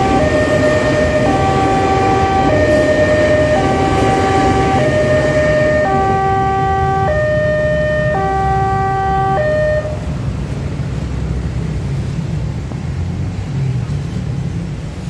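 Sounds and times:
two-tone crossing alarm: 0:00.0 - 0:10.2
low rumble of motorcycles and traffic: 0:00.0 - 0:15.0.

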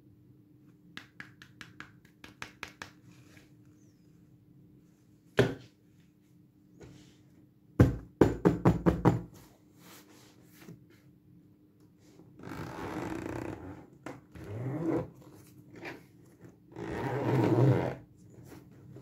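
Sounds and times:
zipper pulled open: 0:12.4 - 0:13.8, 0:14.4 - 0:15.1, 0:16.7 - 0:18.0.

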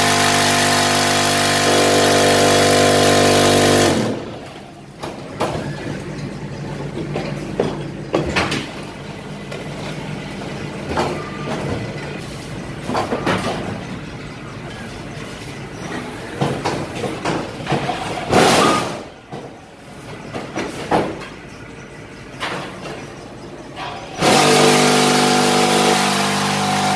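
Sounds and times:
loud burst of noise: 0:00.0 - 0:04.4, 0:24.2 - 0:26.9
brick machine hum: 0:00.0 - 0:26.9
machine clanks and knocks: 0:04.4 - 0:24.2.

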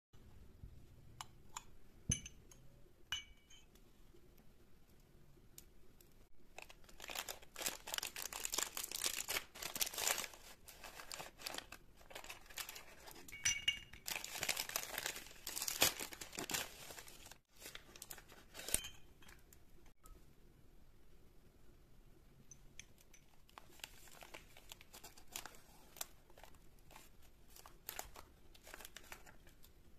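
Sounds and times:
plastic packaging crinkling: 0:06.5 - 0:13.3, 0:14.0 - 0:18.8, 0:23.5 - 0:29.7.

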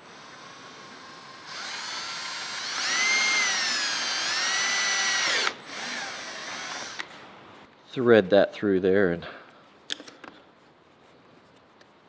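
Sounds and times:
cordless drill motor whine: 0:00.0 - 0:07.1.

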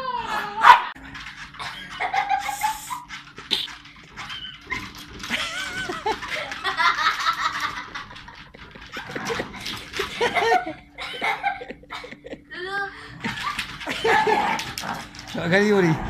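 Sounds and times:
faint steady hum: 0:00.0 - 0:15.4
small dogs whining and yipping: 0:01.7 - 0:05.1.

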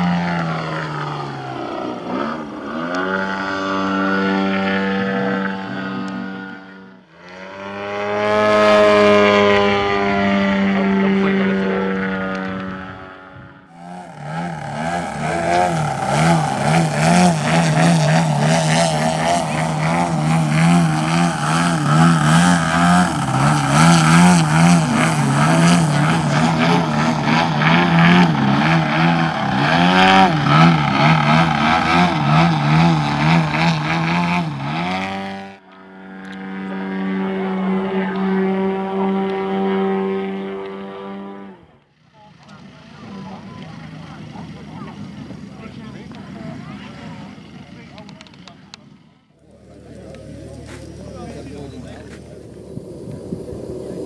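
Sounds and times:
model plane engine and propeller: 0:00.0 - 0:54.0.

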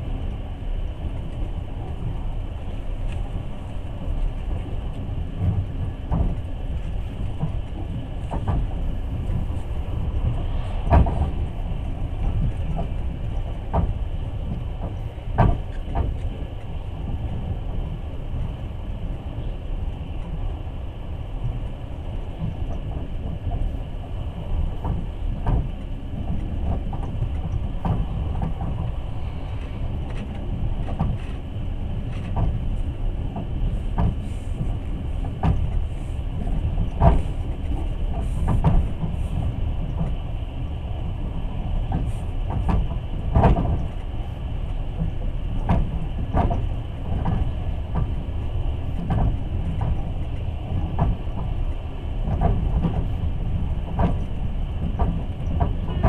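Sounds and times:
train rumble inside carriage: 0:00.0 - 0:56.0
sharp knocks of train wheels: 0:12.2 - 0:16.4, 0:24.7 - 0:28.9, 0:33.4 - 0:35.7, 0:49.0 - 0:50.1, 0:50.7 - 0:51.6.

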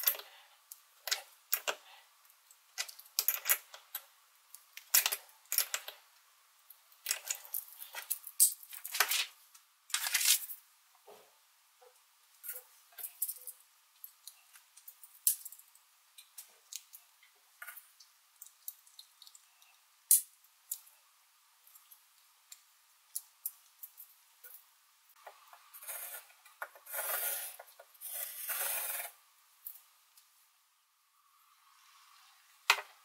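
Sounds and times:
pen scratching on paper: 0:25.8 - 0:29.1.

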